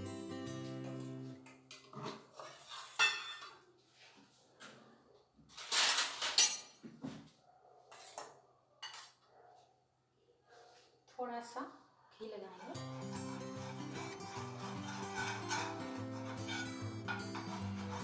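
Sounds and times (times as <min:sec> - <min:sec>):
steel utensils clinking on counter: 0:02.7 - 0:03.6, 0:05.6 - 0:06.8.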